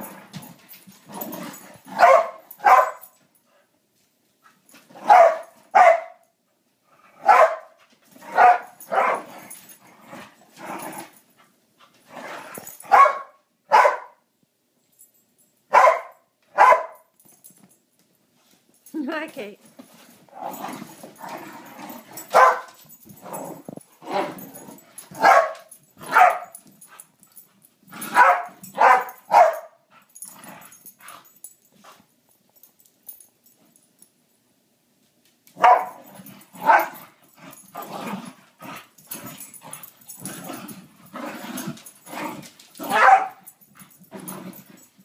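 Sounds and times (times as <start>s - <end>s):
dogs barking: 2.0s - 3.0s, 5.1s - 6.2s, 7.2s - 7.7s, 8.3s - 9.2s, 12.9s - 14.2s, 15.7s - 17.0s, 22.3s - 22.7s, 25.2s - 26.6s, 28.1s - 29.8s, 35.6s - 36.0s, 36.6s - 37.0s, 42.8s - 43.4s.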